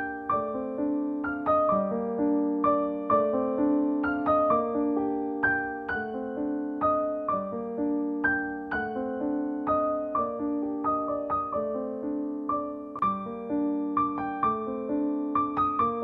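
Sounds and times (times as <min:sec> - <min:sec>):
solo piano music: 0:00.0 - 0:16.0.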